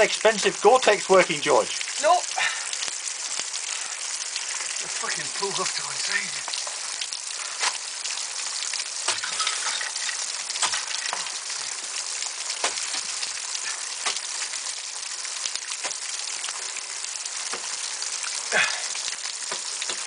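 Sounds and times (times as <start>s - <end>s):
water falling and spraying: 0.0s - 20.0s.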